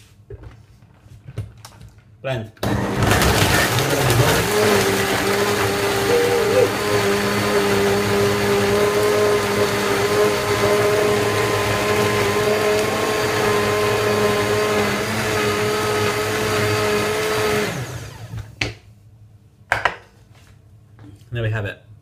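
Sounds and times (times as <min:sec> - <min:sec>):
blender whining: 0:02.6 - 0:18.6.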